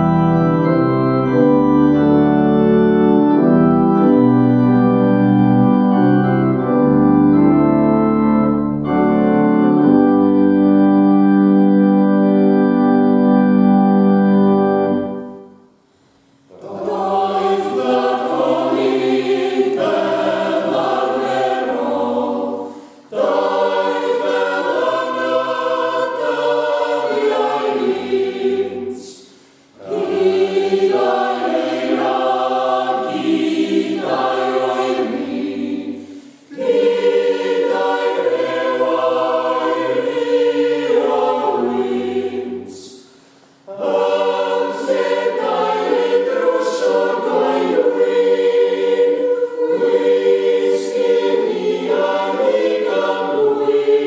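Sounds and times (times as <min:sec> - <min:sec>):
organ chord: 0:00.0 - 0:15.8, 0:16.6 - 0:29.0, 0:29.8 - 0:42.7, 0:43.7 - 0:54.0
men and women singing unaccompanied: 0:16.5 - 0:29.2, 0:29.8 - 0:43.0, 0:43.7 - 0:54.0.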